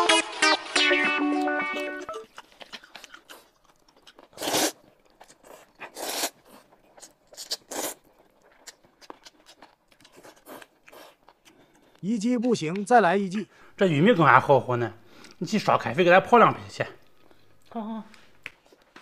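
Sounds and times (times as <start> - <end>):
noodles slurped: 2.0 - 12.0
soft chewing: 2.0 - 12.9, 16.8 - 19.0.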